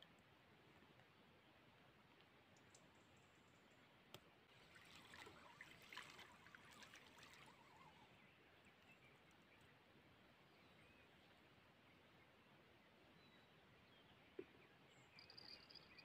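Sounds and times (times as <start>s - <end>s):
water trickling and splashing: 2.1s - 9.8s.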